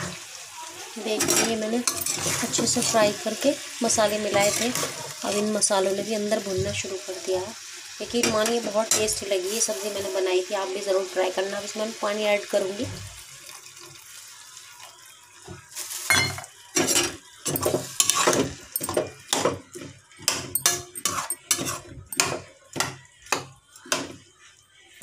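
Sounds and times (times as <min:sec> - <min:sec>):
water hissing in a hot pan: 0:00.0 - 0:25.0
spatula scraping a pan: 0:01.2 - 0:02.8, 0:16.8 - 0:18.6, 0:20.2 - 0:22.9.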